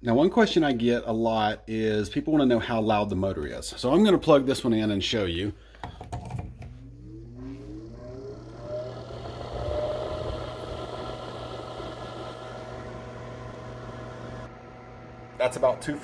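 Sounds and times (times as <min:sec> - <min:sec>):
blower motor whine: 0:06.6 - 0:16.0
rush of air from fan: 0:08.6 - 0:13.1.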